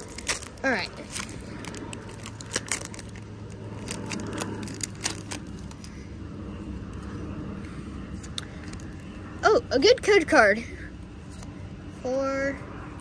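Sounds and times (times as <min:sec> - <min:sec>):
foil wrapper crinkling: 0:00.0 - 0:06.0
trading cards rustling: 0:00.0 - 0:06.0
low steady hum: 0:00.0 - 0:13.0.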